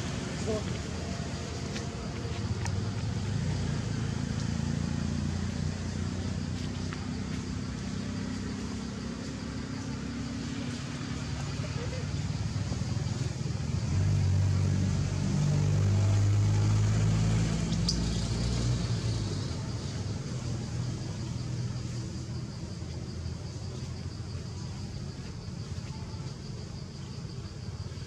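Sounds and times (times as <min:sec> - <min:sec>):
vehicle engine humming: 0:00.0 - 0:28.0.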